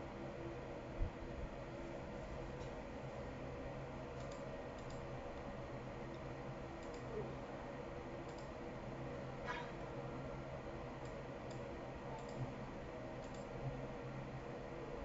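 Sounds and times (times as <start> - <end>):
steady low hum: 0.0 - 15.0
computer mouse clicks: 4.2 - 5.1, 6.8 - 7.1, 8.3 - 8.5, 11.0 - 12.4, 13.2 - 13.5.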